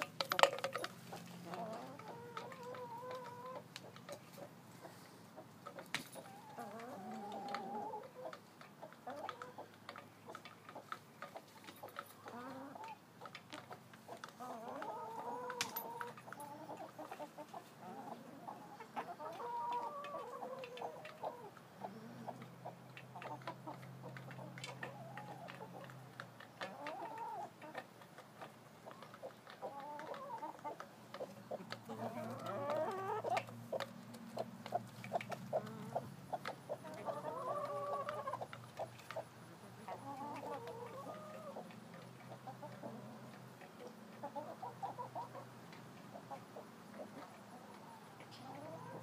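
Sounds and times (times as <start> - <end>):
hens clucking: 0.0 - 49.0.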